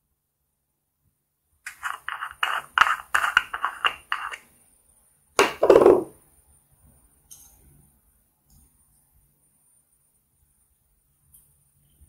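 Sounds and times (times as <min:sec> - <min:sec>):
plastic lid scraping: 0:01.7 - 0:04.4, 0:05.4 - 0:06.1.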